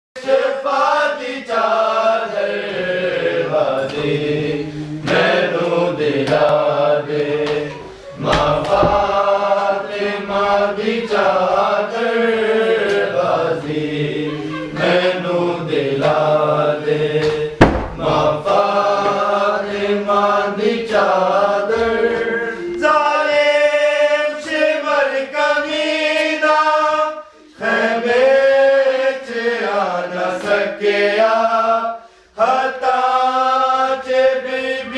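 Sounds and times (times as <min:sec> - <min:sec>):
men chanting a lament: 0:00.2 - 0:34.9
sharp knocks: 0:08.2 - 0:09.2, 0:17.2 - 0:18.4.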